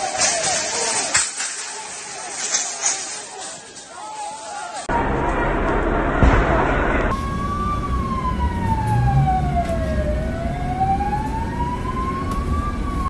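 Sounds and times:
police siren wailing: 7.1s - 13.0s.

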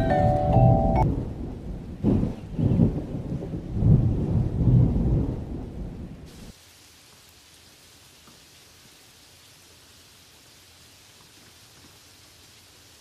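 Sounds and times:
thunder rumbling: 0.6s - 6.5s
rain falling: 0.8s - 13.0s.

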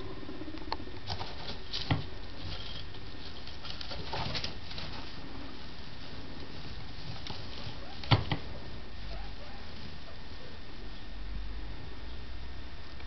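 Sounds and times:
steady hiss: 0.0s - 13.0s
rustling in hay bedding: 1.1s - 11.7s.

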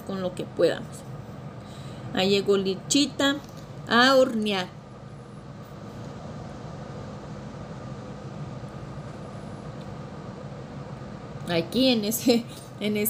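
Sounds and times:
appliance humming with faint whine: 0.0s - 13.0s.

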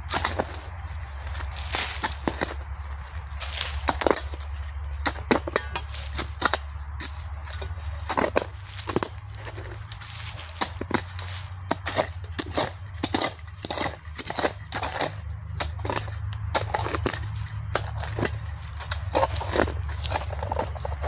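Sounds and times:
hand shovel digging soil: 0.0s - 21.0s.

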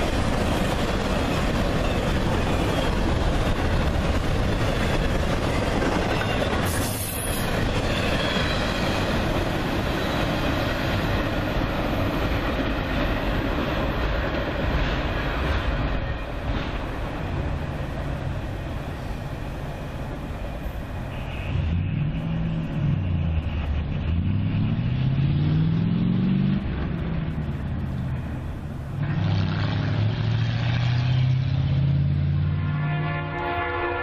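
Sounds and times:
freight train rumble: 0.0s - 34.0s
vehicle engine accelerating: 21.6s - 32.7s.

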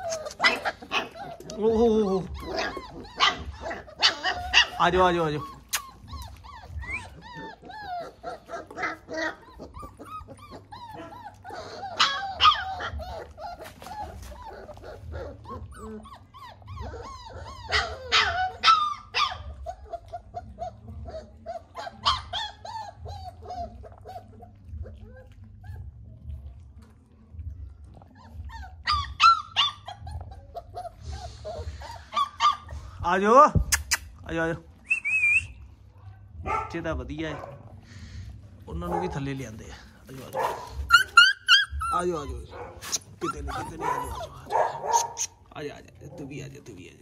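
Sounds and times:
puppies whimpering and yipping: 0.0s - 47.0s
low steady rumble: 19.2s - 33.1s.

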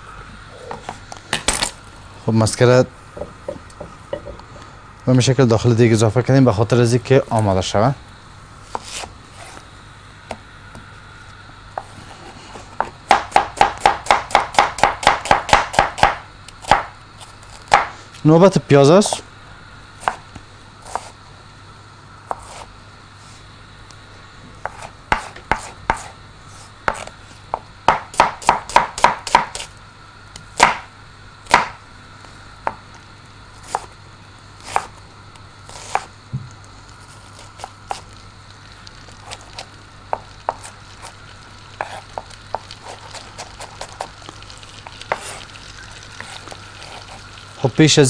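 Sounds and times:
knife chopping on wooden board: 12.8s - 16.9s, 24.6s - 26.1s, 26.9s - 29.7s, 30.6s - 30.9s, 31.5s - 31.8s, 34.7s - 34.9s, 35.7s - 36.5s, 40.1s - 41.1s, 41.8s - 44.1s, 45.1s - 45.4s.

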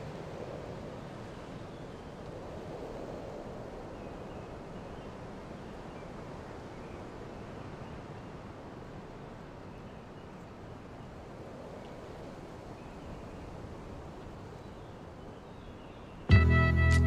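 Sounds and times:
low wind rumble: 0.0s - 16.3s
loud music: 16.3s - 17.0s.

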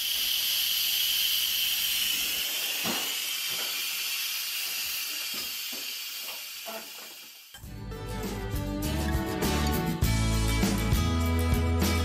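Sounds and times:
pressure cooker steam hissing: 0.0s - 7.6s.

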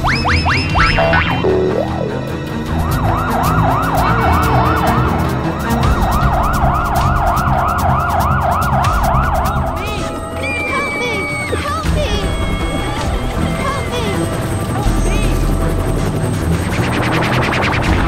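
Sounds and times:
cartoon siren yelping: 2.9s - 14.2s.

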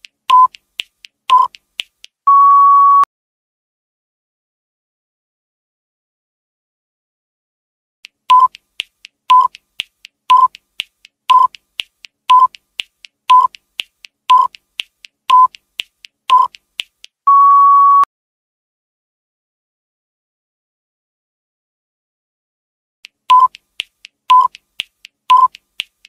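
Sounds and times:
ticking clicks: 0.0s - 2.2s, 8.0s - 17.2s, 23.0s - 26.0s
short electronic beeps: 2.3s - 3.1s, 8.3s - 8.6s, 9.3s - 9.5s, 10.3s - 10.5s, 11.3s - 11.5s, 12.3s - 12.5s, 16.3s - 16.5s, 17.3s - 18.1s, 23.3s - 23.6s, 24.3s - 24.5s, 25.3s - 25.6s.

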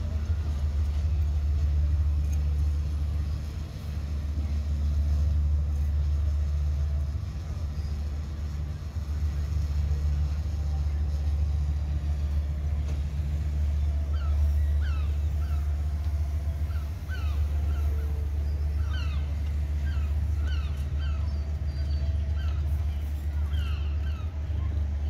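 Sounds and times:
low rumble: 0.0s - 25.0s
birds calling in sharp notes: 13.8s - 25.0s.

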